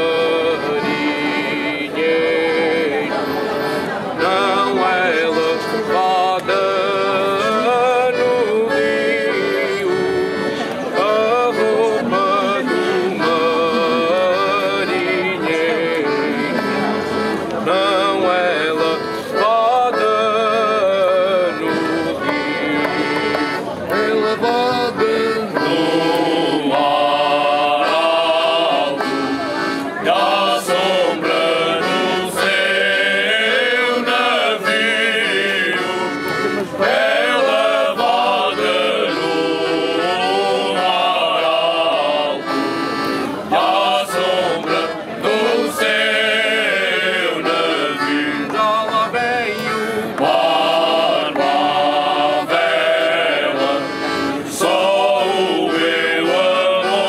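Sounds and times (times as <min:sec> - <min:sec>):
accordion: 0:00.0 - 0:57.0
men singing together: 0:25.6 - 0:29.0, 0:30.1 - 0:36.2, 0:36.9 - 0:42.6, 0:43.5 - 0:57.0.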